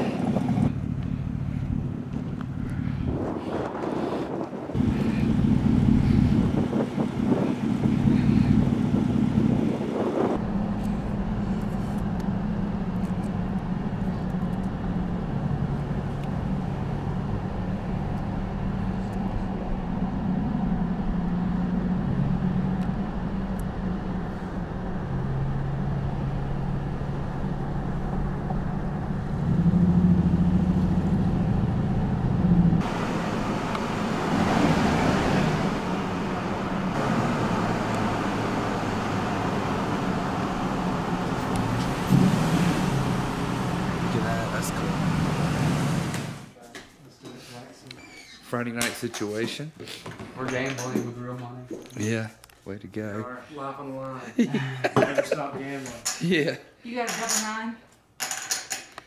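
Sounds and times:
tyre and road noise: 0.0 - 46.6
vehicle engine shifting gears: 0.0 - 46.6
wind rush: 1.5 - 11.4.

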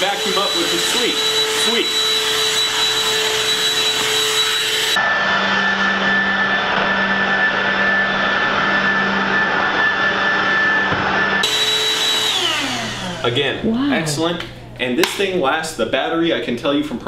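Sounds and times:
handheld vacuum whining: 0.0 - 13.6.

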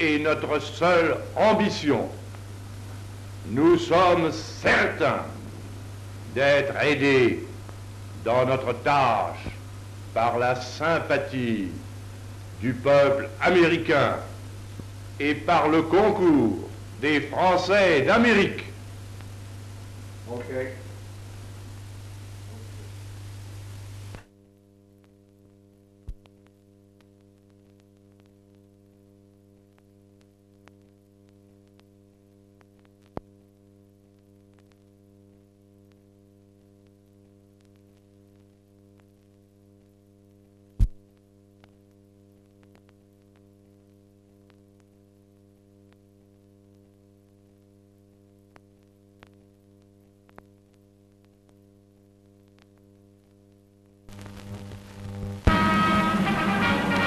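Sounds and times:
electrical hum: 0.0 - 57.0
clicks and pops: 26.0 - 28.4, 40.8 - 41.8.

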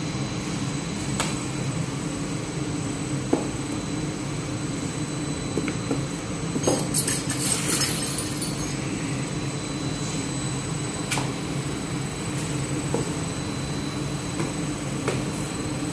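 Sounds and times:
machinery rumble and hum: 0.0 - 15.9
thin high whine: 6.6 - 11.1.

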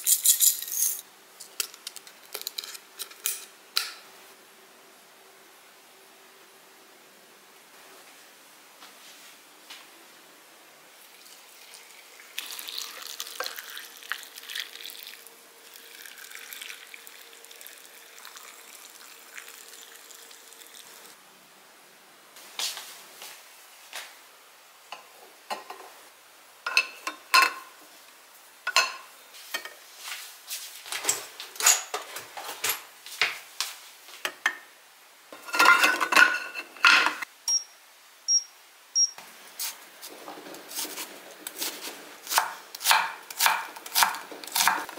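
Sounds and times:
brine pouring from a pot: 11.0 - 21.0.

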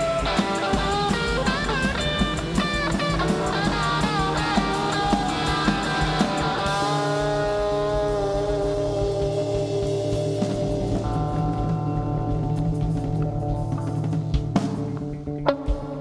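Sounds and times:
drum kit beat: 0.0 - 16.0
rock band playing: 0.0 - 16.0.

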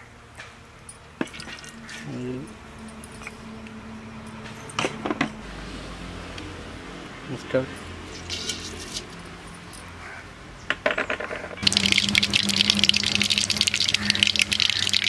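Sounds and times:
oil crackling: 11.6 - 15.0.

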